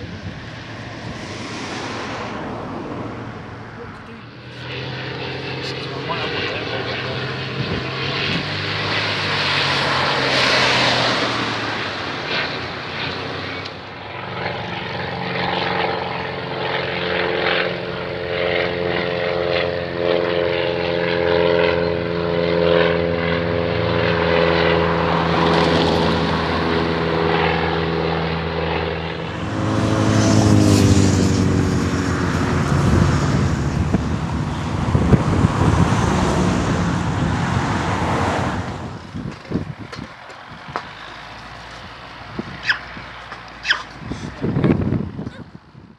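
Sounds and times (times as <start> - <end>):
wind buffeting microphone: 0.0 - 3.2, 5.8 - 9.7, 29.3 - 45.9
propeller aircraft engines droning: 0.0 - 45.9.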